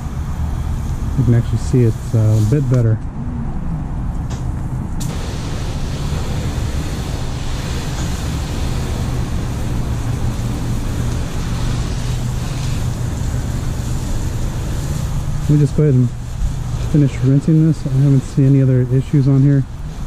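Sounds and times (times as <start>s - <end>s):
water spraying on car: 0.0s - 3.0s, 4.8s - 20.0s
low machine hum: 0.0s - 20.0s.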